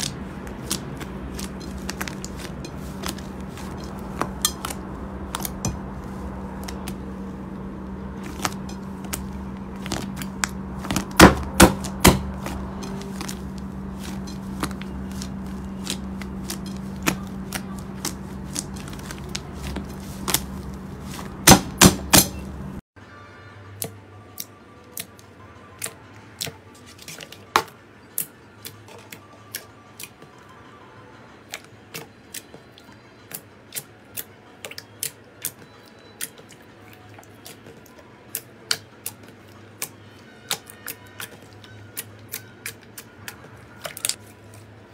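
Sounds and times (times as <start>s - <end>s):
low hum: 0.0s - 22.8s.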